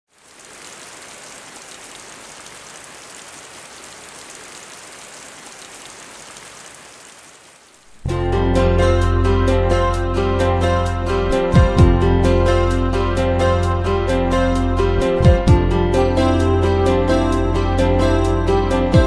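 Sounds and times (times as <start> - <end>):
rain falling: 0.0 - 8.1
music with strong bass: 8.1 - 19.0.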